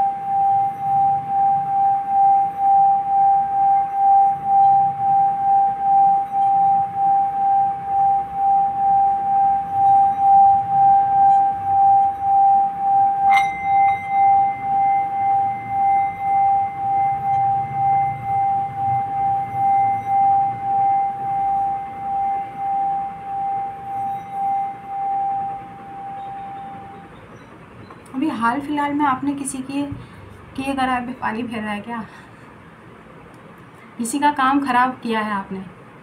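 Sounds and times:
singing bowl ringing tone: 0.0 - 29.9
striker clinking against bowl: 7.8 - 18.6.

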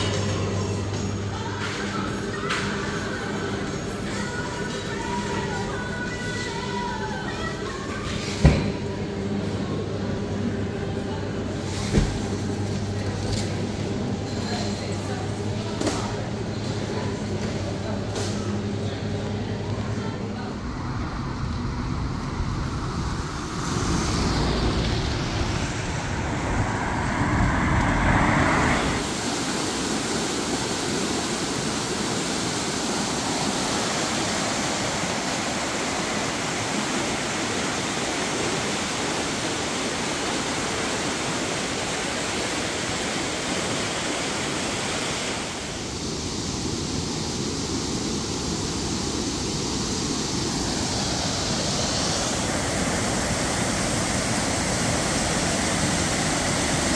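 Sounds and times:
road traffic rumbling: 18.5 - 31.1
stream and small waterfall rushing: 23.4 - 56.9.

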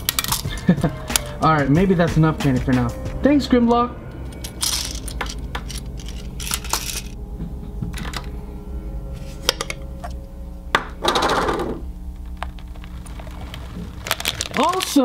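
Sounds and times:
plastic toys clicking and clinking: 0.0 - 0.5, 4.4 - 7.2, 14.0 - 15.0.

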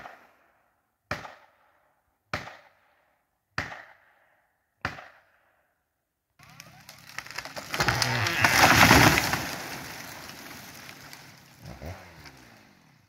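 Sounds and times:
tree crashing to the ground: 6.4 - 12.7
tree trunk cracking and splitting: 6.4 - 12.8.

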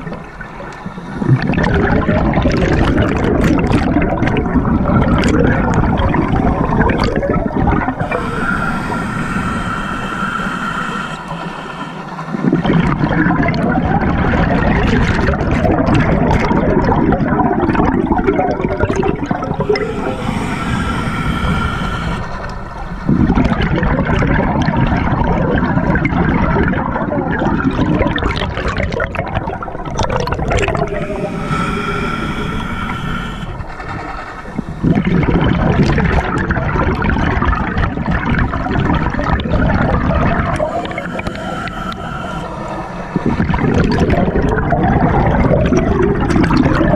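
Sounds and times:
underwater exhaled bubbles: 0.0 - 46.9
regulator hissing: 7.7 - 12.7, 18.8 - 23.4, 30.4 - 36.6, 38.0 - 44.7.

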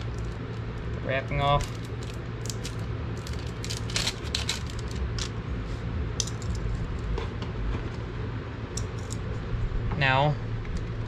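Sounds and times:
steady low hum: 0.0 - 11.0
plastic wrapper crinkling: 1.6 - 5.2.

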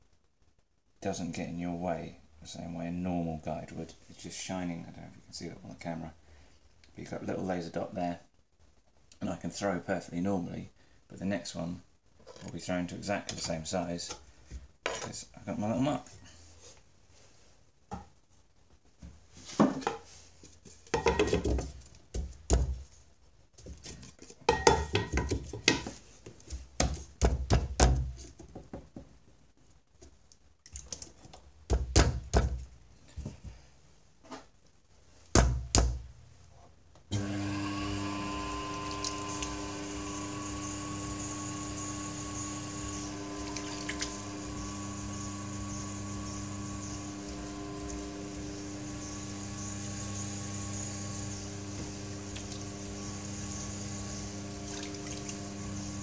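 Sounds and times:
potter's wheel humming: 37.1 - 56.0.

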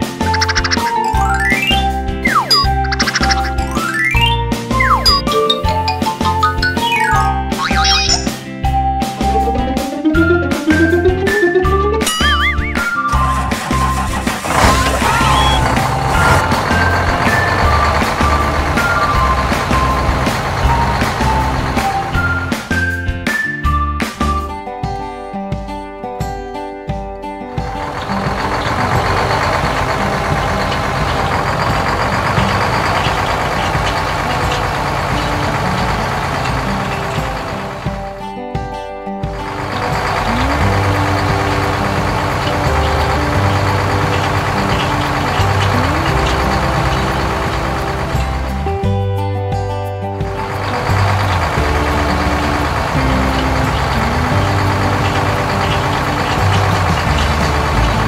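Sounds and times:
combine harvester engine drone: 0.0 - 23.0, 27.5 - 38.2, 39.2 - 49.2, 50.1 - 58.0
light background tune: 0.0 - 25.0.

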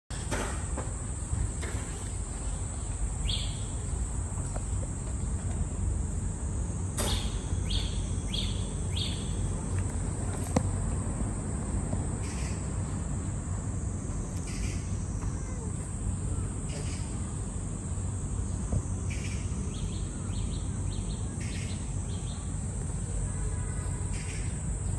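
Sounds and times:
high insect drone: 0.1 - 24.9
bird chirps: 3.2 - 3.7, 7.1 - 9.4.

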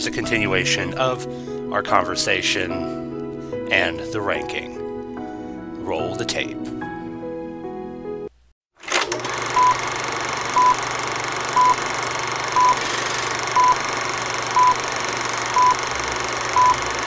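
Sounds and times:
short high beeps: 12.6 - 12.8, 14.6 - 14.8, 16.6 - 16.8.

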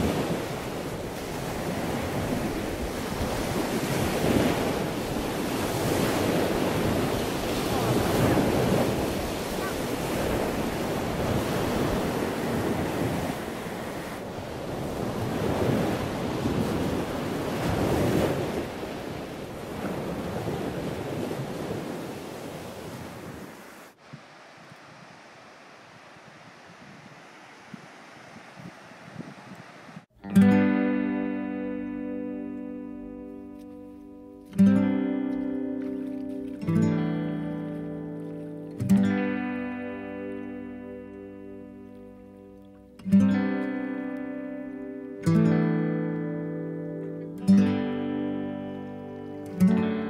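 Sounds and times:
waves surging over rocks: 0.0 - 30.1
wind buffeting microphone: 0.0 - 30.1.

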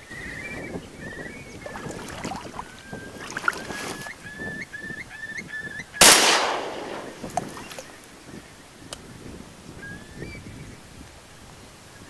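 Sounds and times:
high whistled bird calls: 0.0 - 8.0
shotgun shot: 6.0 - 7.3.

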